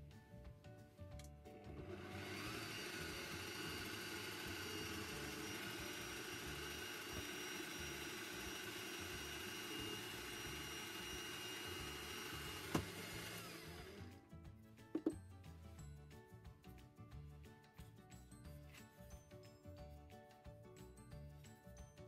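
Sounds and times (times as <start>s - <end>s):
drill press whining: 1.6s - 14.1s.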